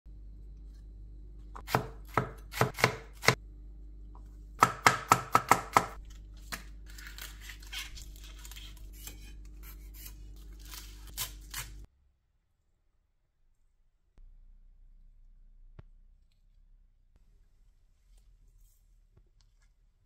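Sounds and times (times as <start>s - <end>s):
knife chopping on cutting board: 1.6s - 3.4s, 4.6s - 6.6s.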